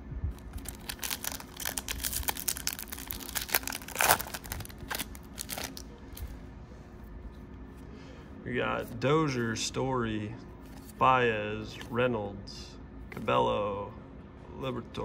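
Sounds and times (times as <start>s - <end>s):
foil wrapper tearing: 0.4s - 5.9s
foil wrapper crinkling: 0.4s - 6.3s.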